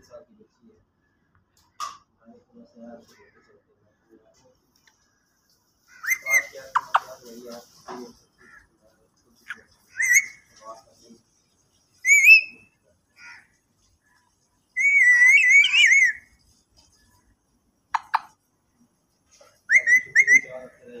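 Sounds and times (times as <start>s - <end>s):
parakeet chirps: 5.9s - 7.4s, 9.5s - 10.5s, 11.9s - 12.7s, 14.8s - 17.2s, 17.9s - 18.4s, 19.7s - 20.6s
parakeet whistling: 6.0s - 7.1s, 10.0s - 10.4s, 12.0s - 12.7s, 14.8s - 16.3s, 18.0s - 18.3s, 19.7s - 20.6s.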